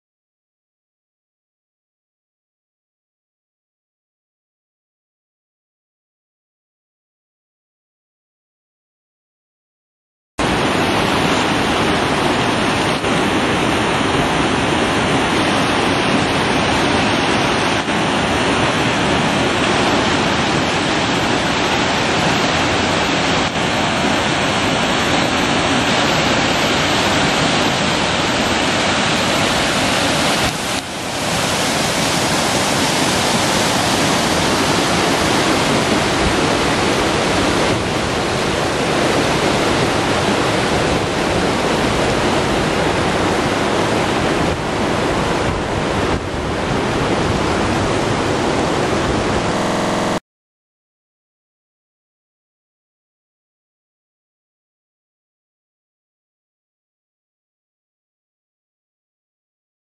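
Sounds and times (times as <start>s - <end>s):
river water rushing over boulders: 10.4s - 50.2s.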